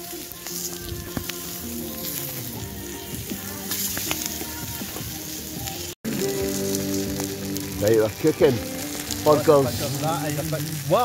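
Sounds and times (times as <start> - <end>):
food sizzling in a frying pan: 0.0 - 11.0
music playing: 0.0 - 11.0.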